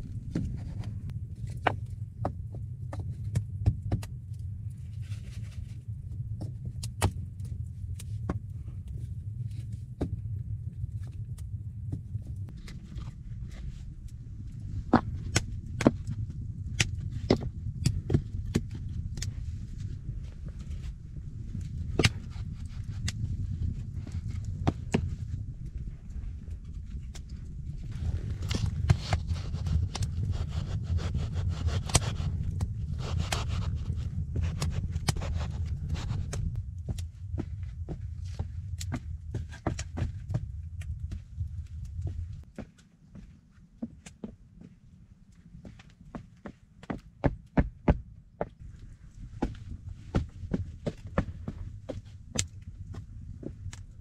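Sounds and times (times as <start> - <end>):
steady low rumble: 0.0 - 54.0
footsteps on wooden rounds: 45.6 - 54.0.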